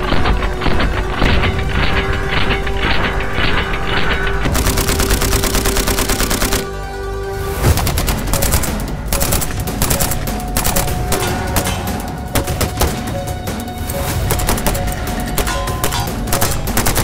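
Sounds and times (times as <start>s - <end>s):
background music: 0.0s - 17.0s
suppressed rifle rapid fire: 4.5s - 6.8s, 15.4s - 17.0s.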